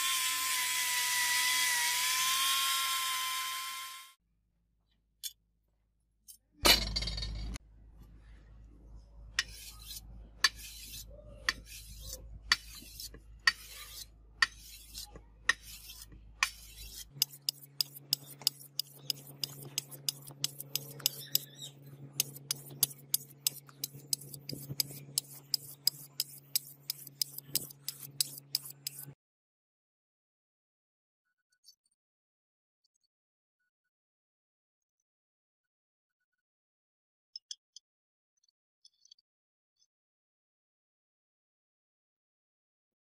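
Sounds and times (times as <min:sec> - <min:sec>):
sharpening stone scraping blade: 0:09.4 - 0:29.2.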